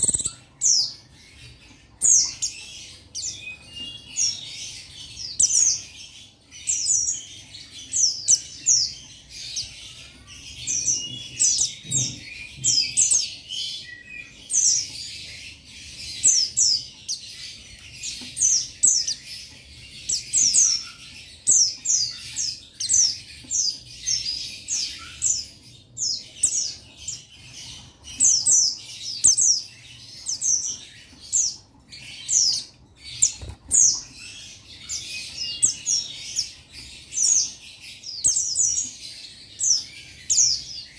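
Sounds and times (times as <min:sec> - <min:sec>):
bird chirping rapidly: 0:00.0 - 0:01.1.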